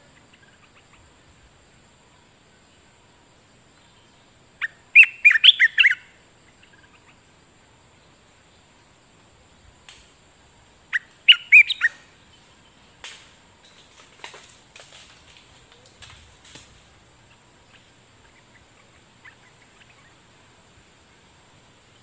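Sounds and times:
faint high insect buzz: 0.0 - 22.0
bird singing quick notes: 10.9 - 12.0.

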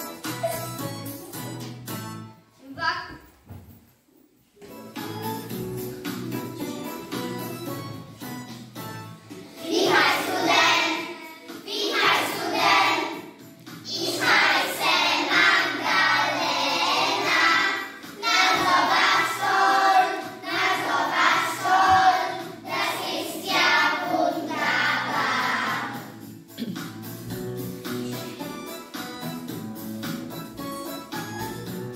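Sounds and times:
quiet instrumental backing: 0.0 - 31.9
children singing together: 9.5 - 26.1.

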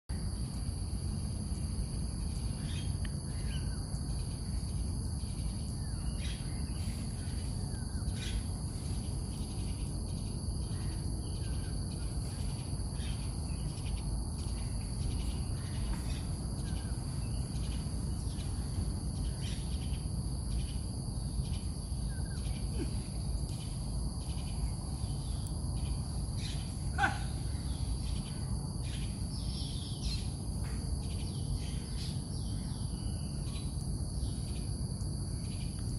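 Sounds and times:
insects trilling: 0.1 - 35.9
faint bird calls: 26.4 - 27.9.

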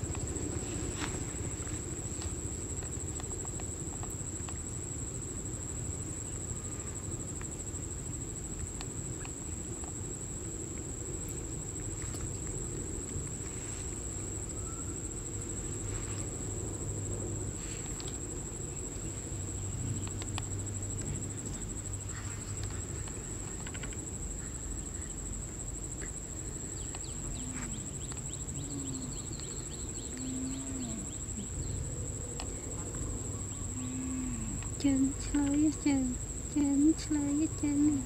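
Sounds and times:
insects trilling: 0.0 - 38.0
small clicks and rustles: 17.6 - 18.4, 19.8 - 24.2.

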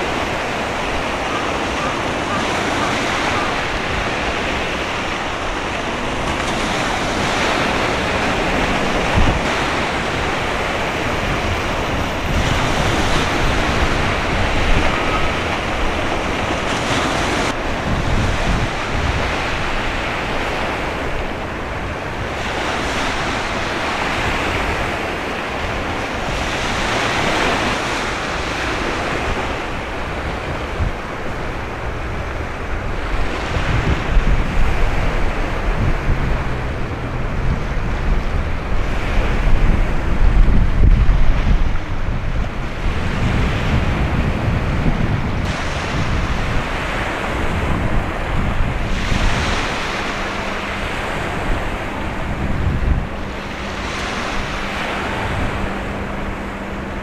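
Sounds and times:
choppy sea: 0.0 - 57.0
wind rumbling on microphone: 0.0 - 57.0
wind rushing: 32.3 - 57.0.

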